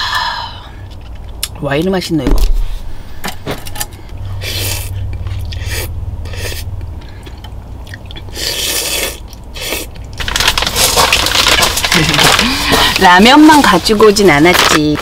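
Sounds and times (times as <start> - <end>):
person slurping noodles: 4.4 - 6.7, 8.2 - 10.0
chewing: 4.6 - 10.2
rustling and handling noise: 10.1 - 15.0.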